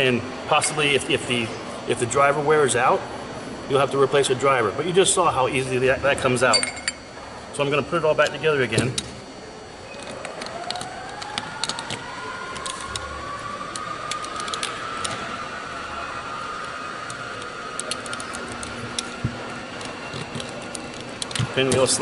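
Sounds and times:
background whine: 0.0s - 22.0s
metal parts clicking and clinking: 6.5s - 7.1s, 13.7s - 15.2s, 17.1s - 19.2s, 19.8s - 22.0s.

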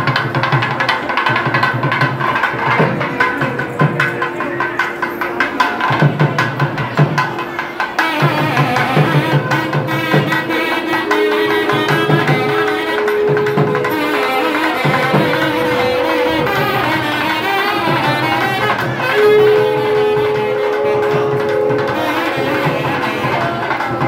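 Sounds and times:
continuous drumming: 0.0s - 24.0s
reed horn holding long notes: 7.6s - 24.0s.

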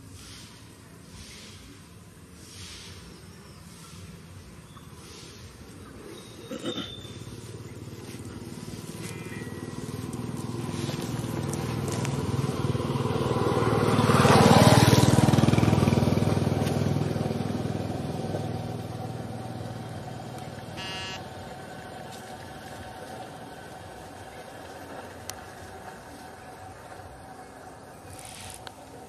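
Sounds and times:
vehicle engine passing by: 7.0s - 29.0s.

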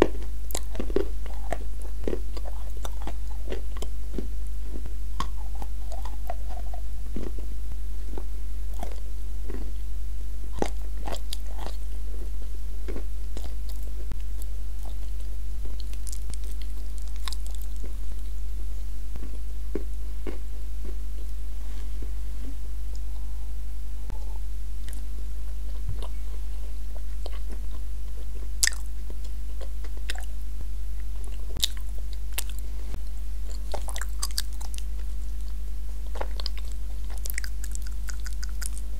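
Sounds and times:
chewing thick paste: 0.0s - 9.7s, 10.6s - 18.3s, 27.0s - 30.3s, 31.0s - 32.6s, 33.5s - 38.9s
low electrical hum: 0.0s - 38.9s
wet mouth clicks: 37.2s - 38.9s.

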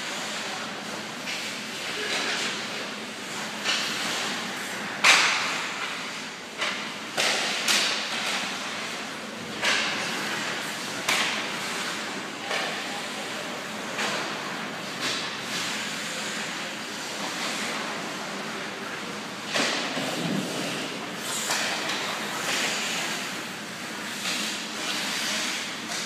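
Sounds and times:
hockey pucks and sticks knocking: 3.6s - 13.1s, 13.8s - 18.2s, 19.5s - 23.4s, 24.0s - 26.0s.

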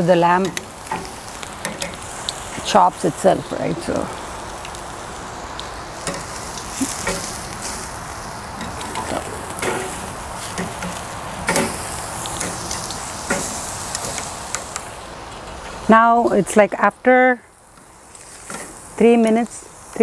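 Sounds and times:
meat sizzling on grill: 0.0s - 20.0s
metal tongs knocking on grate: 7.0s - 7.4s.

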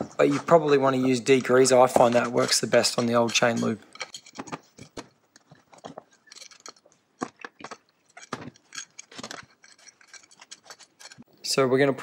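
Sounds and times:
rag scrubbing metal part: 0.0s - 11.3s.

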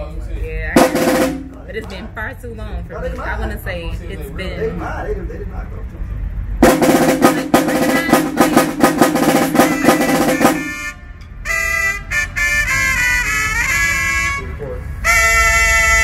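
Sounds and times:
marching drum roll: 0.8s - 1.8s, 6.6s - 11.0s
brass horn short notes: 7.1s - 16.0s.

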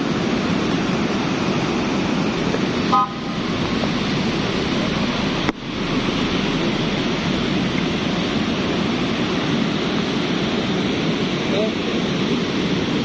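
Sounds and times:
mudflow rushing through gorge: 0.0s - 13.0s.

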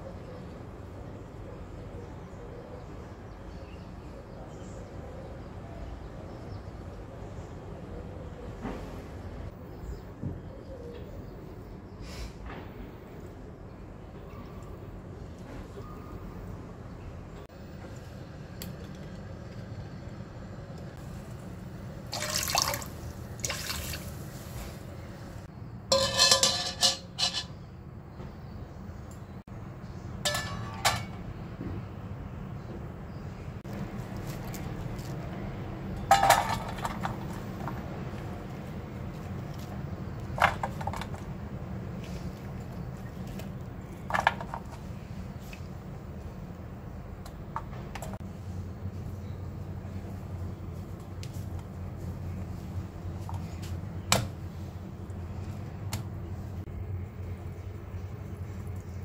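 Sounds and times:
water splashing into a wok: 22.0s - 24.4s
metal stand clanking in wok: 25.9s - 27.7s, 30.2s - 31.3s.

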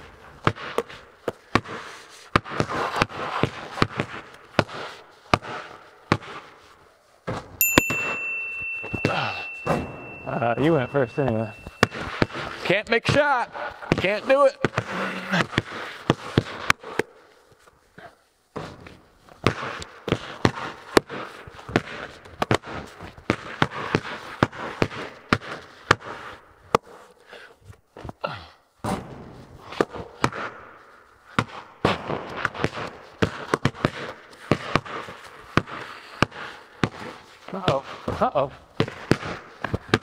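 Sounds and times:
basketballs bouncing on concrete: 0.4s - 6.4s, 13.8s - 16.8s, 19.4s - 26.0s, 31.4s - 40.0s.

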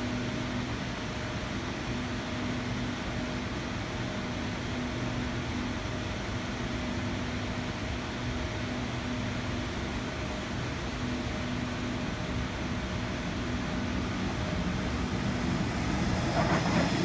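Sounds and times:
distant train rumble: 12.8s - 17.0s.

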